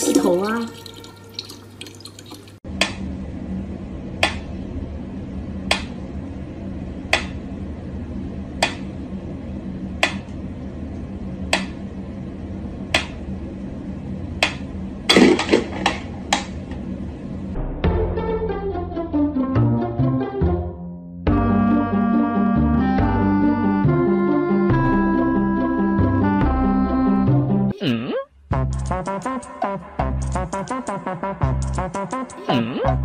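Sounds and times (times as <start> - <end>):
steady low hum: 2.6 - 17.8.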